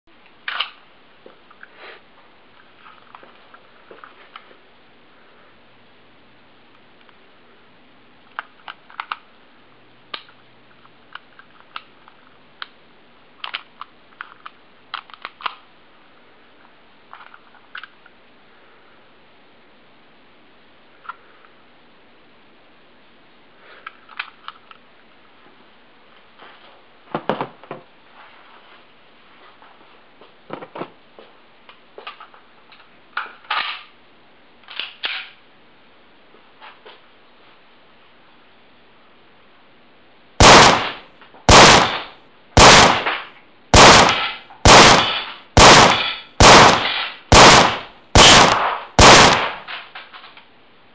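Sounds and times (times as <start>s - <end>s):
pistol action clicking: 43.8s - 49.6s.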